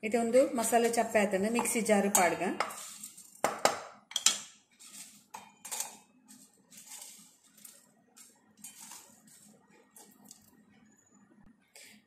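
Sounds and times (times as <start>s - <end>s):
spatula scraping a steel pan: 2.2s - 3.3s, 8.6s - 9.5s.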